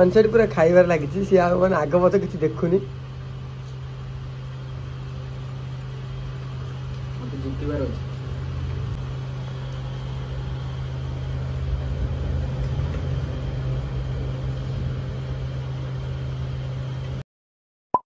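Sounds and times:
noisy background: 0:00.0 - 0:17.2
motor humming: 0:00.2 - 0:17.2.

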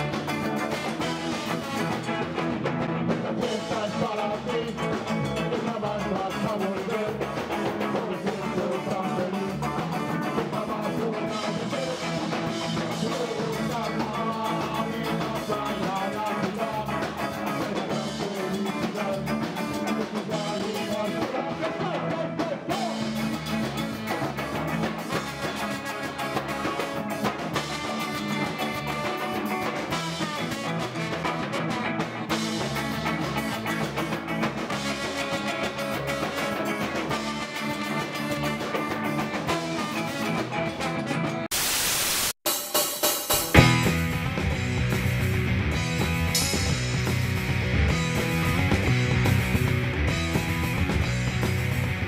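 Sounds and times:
trombone: 0:00.0 - 0:04.7, 0:19.7 - 0:41.5, 0:43.5 - 0:44.6
electric guitar: 0:00.0 - 0:42.3, 0:43.3 - 0:52.0
drum kit: 0:00.0 - 0:52.0
person singing: 0:03.1 - 0:23.8.

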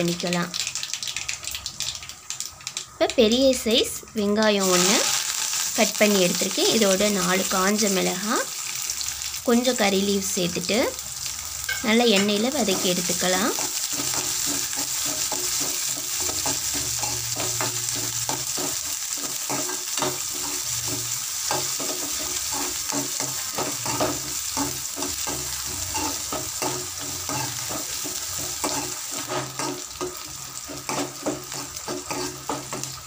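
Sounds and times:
food sizzling in hot oil: 0:00.0 - 0:33.0
spatula scraping pan: 0:12.2 - 0:33.0.

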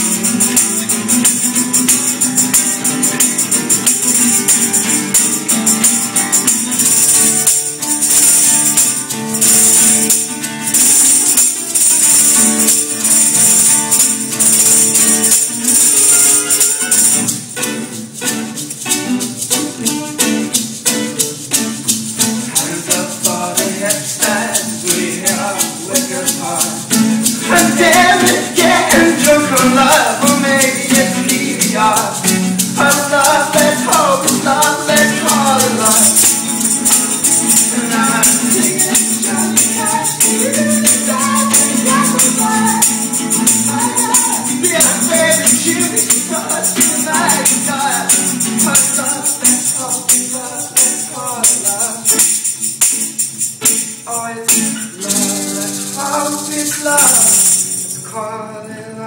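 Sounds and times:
tambourine jingles: 0:00.0 - 0:58.1
acoustic guitar strummed: 0:00.0 - 0:59.0
men singing: 0:22.3 - 0:52.4, 0:54.0 - 0:59.0.

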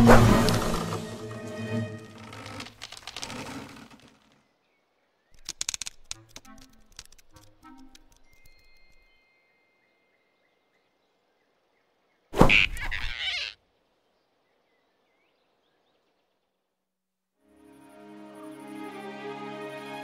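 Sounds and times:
soft music: 0:00.0 - 0:02.6, 0:06.0 - 0:10.5, 0:17.4 - 0:20.0
cartoon snatch sound effect: 0:12.4 - 0:13.0.

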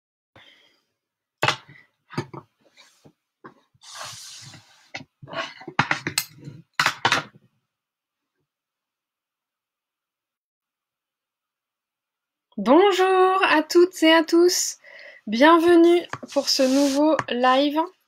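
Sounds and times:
rubbing scraping sound: 0:03.8 - 0:05.1, 0:16.0 - 0:17.2.

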